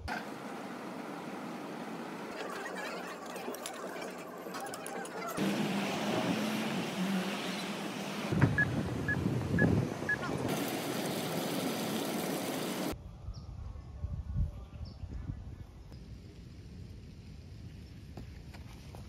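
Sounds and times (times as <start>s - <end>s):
street noise: 0.0s - 13.0s
low outdoor rumble: 15.4s - 19.0s.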